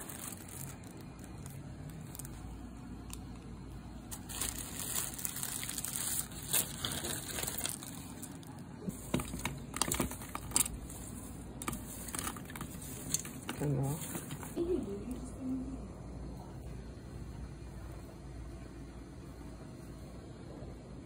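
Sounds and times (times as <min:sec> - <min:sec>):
plastic bags crinkling: 0:00.0 - 0:03.4, 0:04.1 - 0:14.6.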